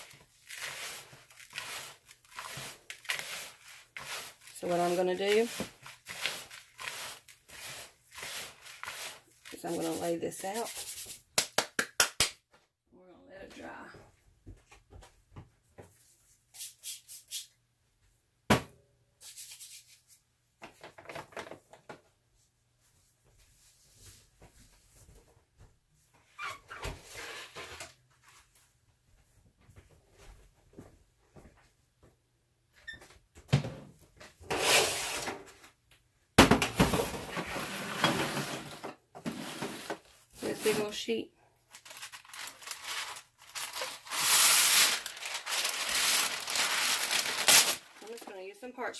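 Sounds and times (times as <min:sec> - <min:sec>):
rustling and handling noise: 0:00.0 - 0:11.4, 0:36.8 - 0:48.9
handling rustles: 0:41.7 - 0:48.8.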